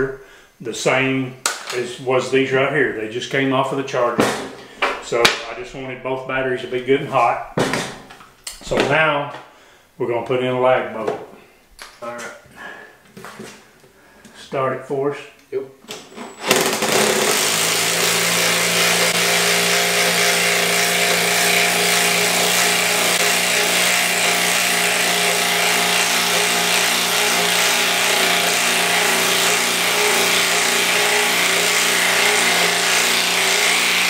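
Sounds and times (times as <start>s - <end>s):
impact driver hammering: 16.4s - 34.0s.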